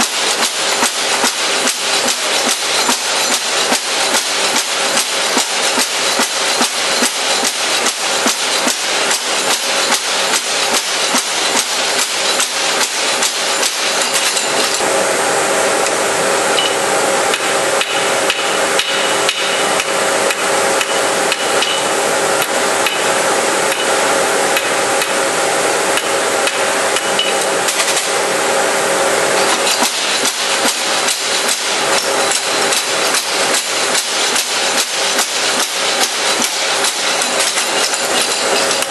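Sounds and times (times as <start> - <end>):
hammer forging ringing steel: 16.6 - 24.0, 26.0 - 27.5, 34.7 - 38.9.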